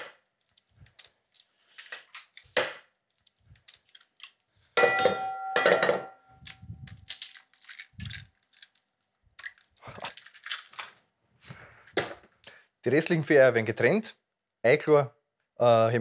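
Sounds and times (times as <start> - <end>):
eggs cracking on a bowl: 0.0 - 11.0
loud knocks on enamel bowl: 4.8 - 6.2
bowl ringing: 4.8 - 6.4.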